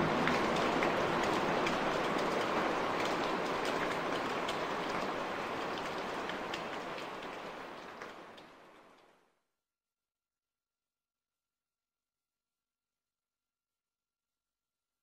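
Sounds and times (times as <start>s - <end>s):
rain pattering: 0.0s - 9.3s.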